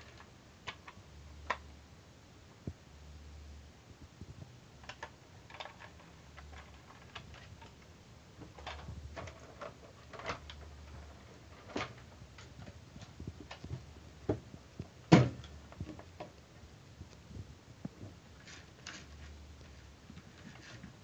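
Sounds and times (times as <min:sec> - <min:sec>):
plastic toy clicking and knocking: 0:00.0 - 0:01.6, 0:04.8 - 0:07.8.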